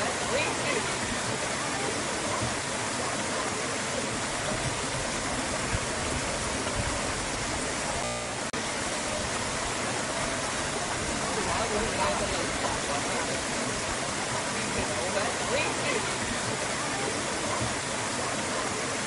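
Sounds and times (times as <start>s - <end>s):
stream water over rocks: 0.0s - 19.0s.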